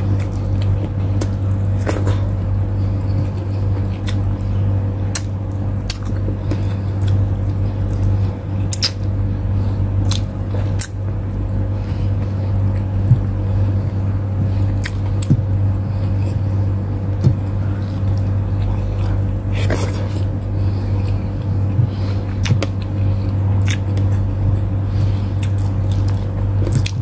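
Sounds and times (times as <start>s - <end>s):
steady low hum: 0.0s - 27.0s
wet squishing and chewing: 0.0s - 27.0s.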